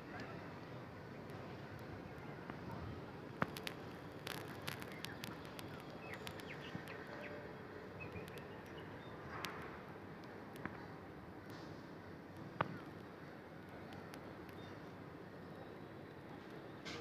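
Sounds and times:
outdoor background noise: 0:00.0 - 0:17.0
sharp clicks: 0:03.4 - 0:07.3.

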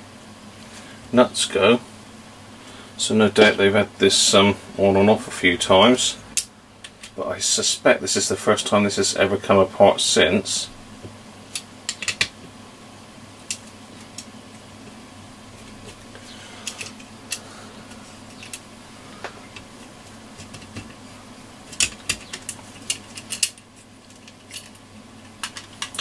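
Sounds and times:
metal tools clicking on screws: 0:21.7 - 0:23.6.

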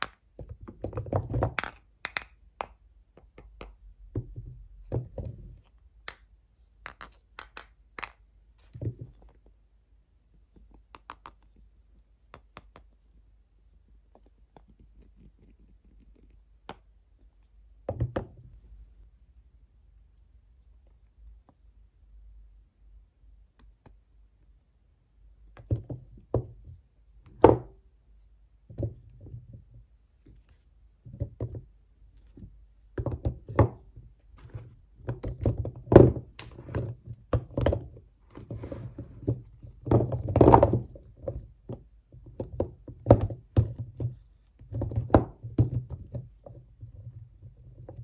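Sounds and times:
soap bars knocking together: 0:00.0 - 0:09.3, 0:31.1 - 0:38.1, 0:39.2 - 0:48.0.

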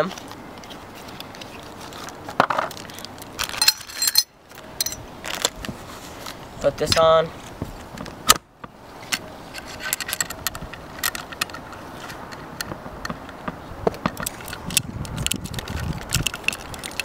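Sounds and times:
metal parts clicking and scraping: 0:01.1 - 0:05.5, 0:09.0 - 0:12.7, 0:14.1 - 0:17.0.

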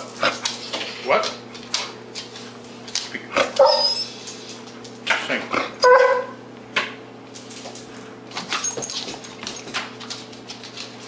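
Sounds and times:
dog barking: 0:03.6 - 0:04.0, 0:05.8 - 0:06.4.

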